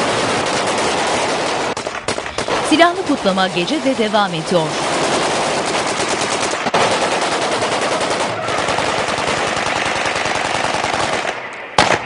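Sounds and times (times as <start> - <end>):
automatic gunfire: 0.0 - 3.8, 4.7 - 12.0.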